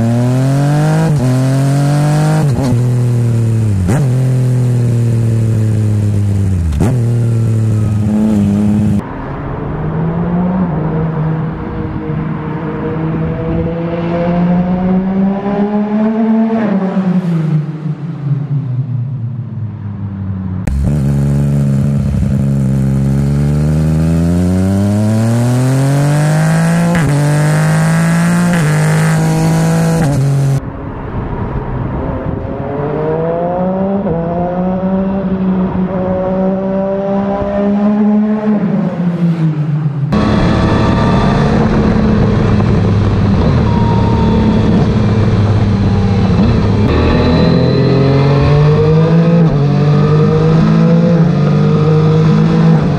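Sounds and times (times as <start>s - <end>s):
motorcycle engine accelerating: 0.0s - 52.9s
wind rushing over microphone: 30.6s - 36.6s, 40.2s - 51.5s.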